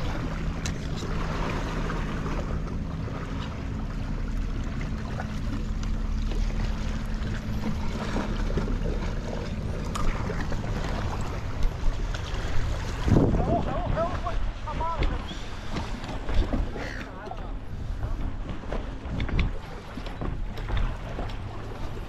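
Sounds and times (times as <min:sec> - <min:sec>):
boat engine droning: 0:00.0 - 0:22.0
wind rumble on microphone: 0:06.5 - 0:22.0.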